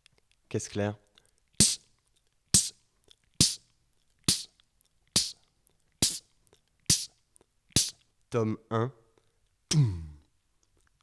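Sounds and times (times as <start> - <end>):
beatboxed snare drum: 1.6 - 1.9, 2.5 - 2.8, 3.4 - 4.6, 5.2 - 5.4, 6.0 - 6.3, 6.9 - 8.0.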